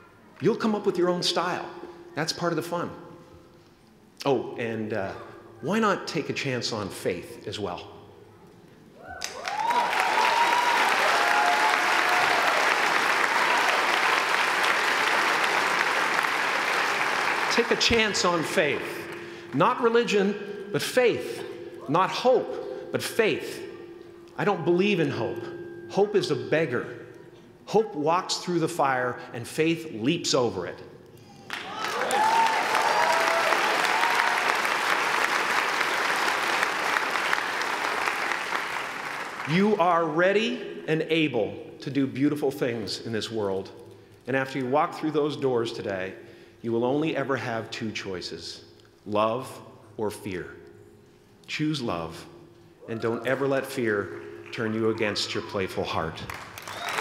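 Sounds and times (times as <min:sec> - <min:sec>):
voices cheering: 0:09.0 - 0:18.4, 0:31.5 - 0:38.4, 0:56.6 - 0:57.0
audience applauding: 0:09.2 - 0:19.3, 0:31.5 - 0:39.6, 0:56.2 - 0:57.0.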